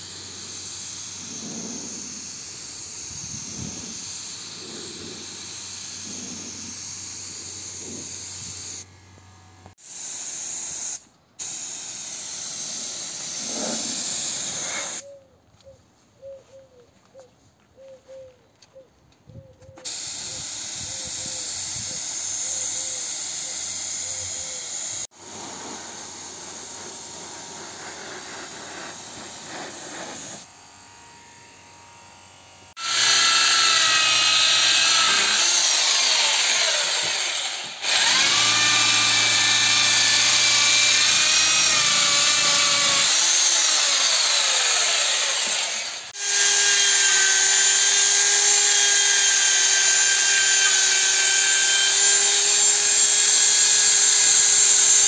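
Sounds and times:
spray gun hissing: 0.0 - 8.8, 9.8 - 15.0, 19.9 - 30.5
electric drill on metal: 0.0 - 15.0, 19.8 - 55.0.

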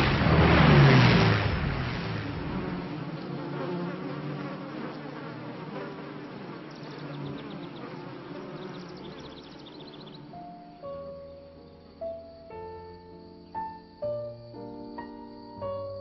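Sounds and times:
insect wings buzzing: 2.3 - 16.0
faint high chirping ticks: 4.8 - 16.0.

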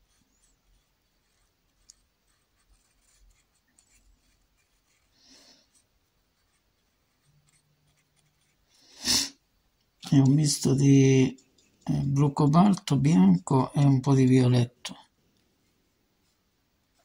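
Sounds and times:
paintbrush scratching on canvas: 0.0 - 9.4.

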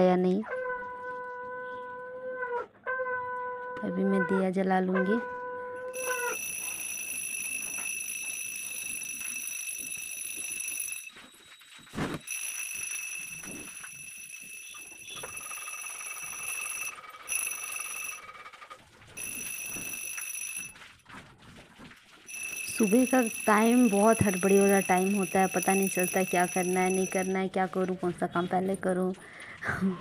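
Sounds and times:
hand bell ringing: 5.9 - 11.1, 12.3 - 18.2.

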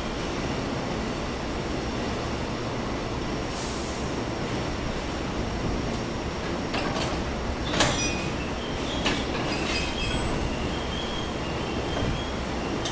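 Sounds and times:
low train rumble: 0.0 - 12.9
train wheels squealing: 7.6 - 12.9.

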